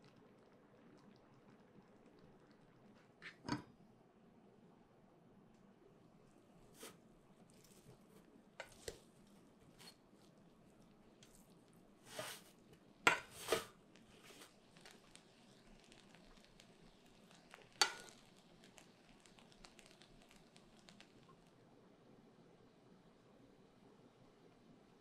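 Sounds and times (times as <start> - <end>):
rice paddle scraping a pot: 8.6 - 9.0, 12.1 - 12.5, 13.1 - 14.5.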